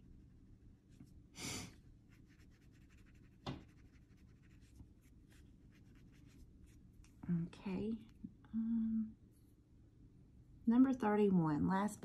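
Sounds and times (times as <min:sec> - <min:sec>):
pencil scratching on paper: 0:02.1 - 0:06.8.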